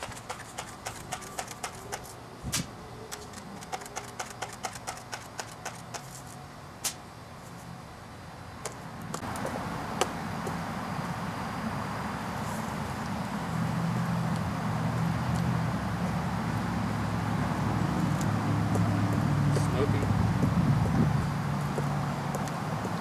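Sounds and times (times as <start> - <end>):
sharp irregular clicks: 0.0 - 2.1, 3.1 - 6.1
steady hiss: 4.1 - 23.0.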